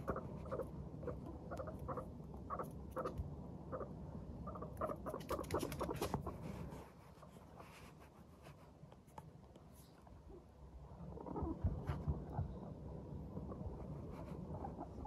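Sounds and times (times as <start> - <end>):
guinea pigs chutting: 0.0 - 15.0
pattering and scratching on rug: 4.9 - 10.1.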